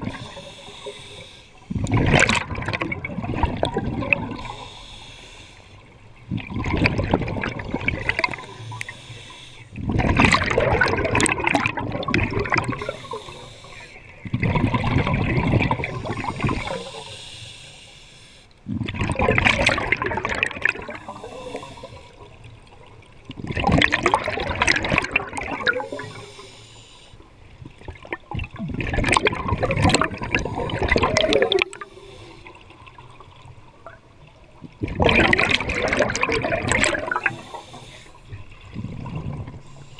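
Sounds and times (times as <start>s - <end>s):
air bubbling from regulator underwater: 0.0s - 4.8s, 6.3s - 9.0s, 9.8s - 17.0s, 18.7s - 22.0s, 23.3s - 26.4s, 27.7s - 32.9s, 34.6s - 39.9s.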